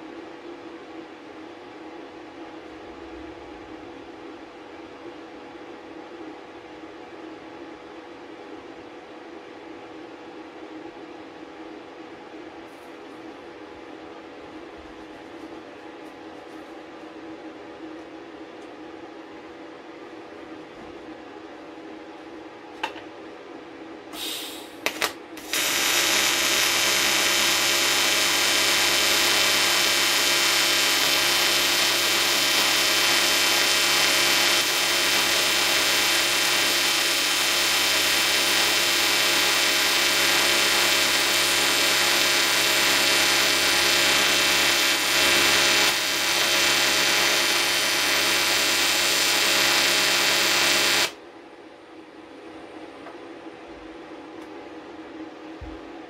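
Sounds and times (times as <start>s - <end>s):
welding arc buzzing: 24.2s - 51.2s.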